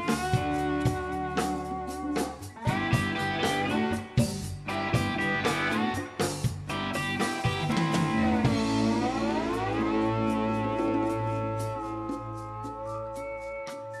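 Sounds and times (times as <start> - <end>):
drum kit: 0.0 - 14.0
electric guitars bending notes: 0.0 - 14.0.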